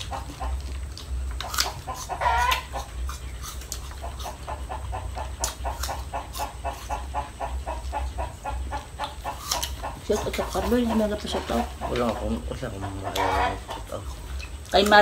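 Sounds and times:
chickens clucking: 0.0 - 15.0
wavering chicken call: 1.9 - 2.8.

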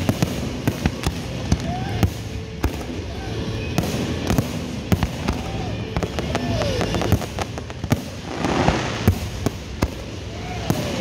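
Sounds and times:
firework hiss: 0.0 - 3.0, 3.8 - 11.0
fireworks bursting: 0.0 - 11.0
falling firework whistles: 3.6 - 11.0.

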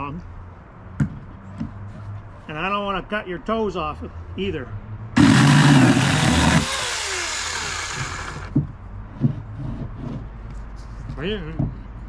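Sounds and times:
electric chainsaw motor whine: 5.2 - 8.5.

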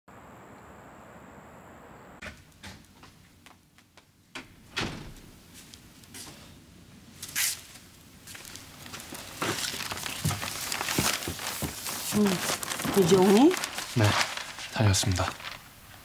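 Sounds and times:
man's footsteps: 2.2 - 16.0
door opening: 4.3 - 5.3
newspaper pages rustling: 7.2 - 16.0.

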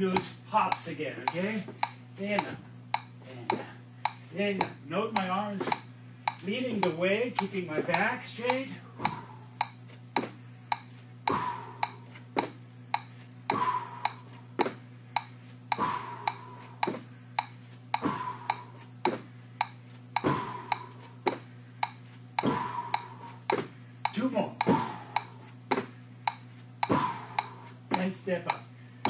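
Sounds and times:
low steady hum: 0.0 - 29.0
feet thumping on carpeted stairs: 3.5 - 3.7, 9.0 - 9.4, 11.3 - 14.8, 15.8 - 17.1, 18.0 - 19.3, 20.2 - 21.5, 22.4 - 23.8, 24.6 - 26.0, 26.8 - 28.6
metronome clicking: 4.0 - 8.6, 27.4 - 28.6.

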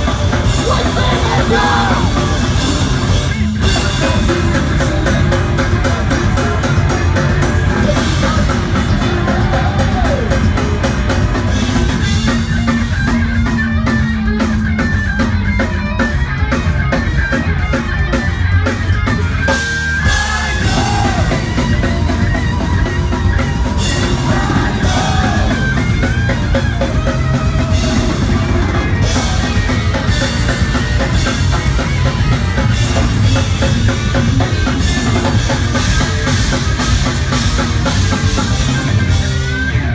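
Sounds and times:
rock band playing live: 0.0 - 39.9.

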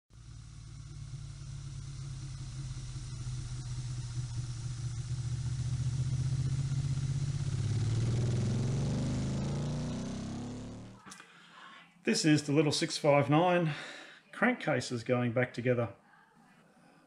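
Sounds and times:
engine revving up: 0.1 - 11.0.

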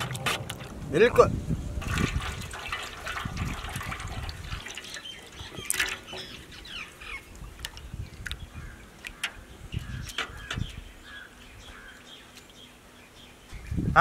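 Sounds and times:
milk pouring into liquid: 1.8 - 6.2.

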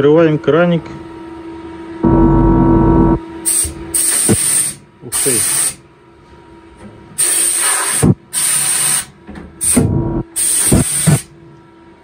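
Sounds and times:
air spray gun bursts: 3.4 - 5.8, 7.2 - 9.8, 10.4 - 11.3.

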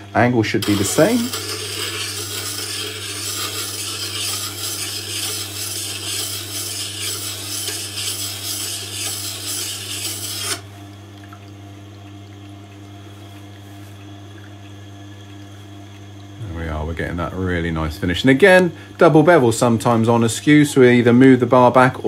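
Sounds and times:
chisel scraping on grindstone: 0.6 - 10.6.

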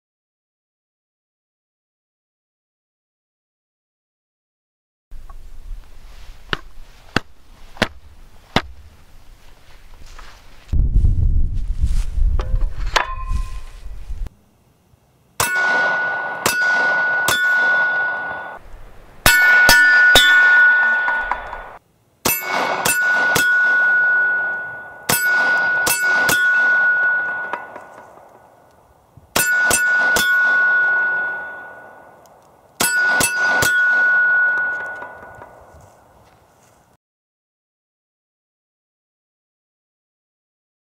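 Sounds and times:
bullets clanging on steel plate: 15.4 - 18.6, 19.3 - 28.3, 29.4 - 32.2.

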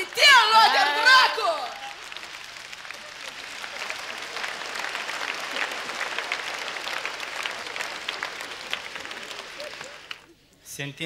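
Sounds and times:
audience applauding: 0.0 - 10.4
audience laughing: 2.9 - 10.3.

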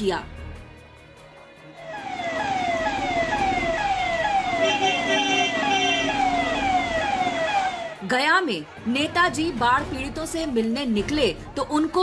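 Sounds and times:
higher siren tone: 1.8 - 8.0
siren falling sweeps: 1.8 - 8.0.

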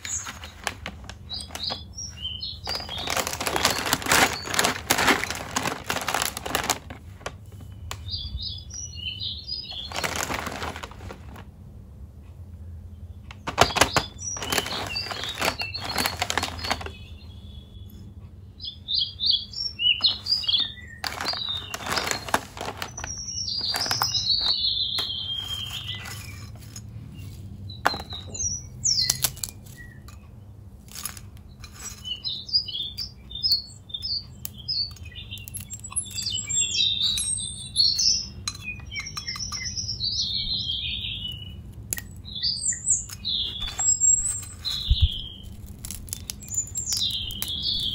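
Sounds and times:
crunchy snack sticks crunching: 0.0 - 7.1, 9.8 - 11.4, 13.4 - 17.0, 20.0 - 26.7, 43.0 - 47.9
plastic snack packet crackling: 0.0 - 7.5, 9.7 - 11.5, 13.3 - 17.0, 20.0 - 26.5, 43.2 - 47.9
small birds chirping: 0.0 - 11.5, 12.2 - 47.9.

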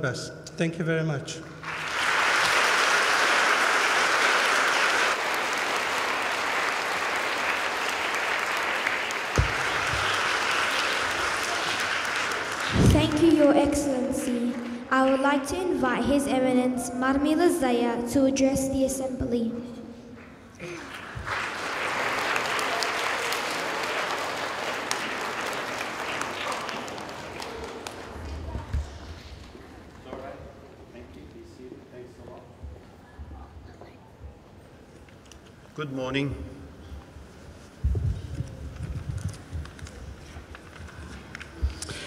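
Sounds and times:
audience applauding: 1.6 - 15.3, 20.6 - 28.6.

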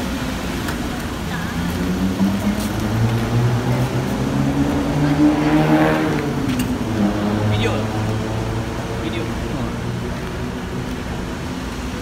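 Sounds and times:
car engine revving: 1.3 - 11.4.

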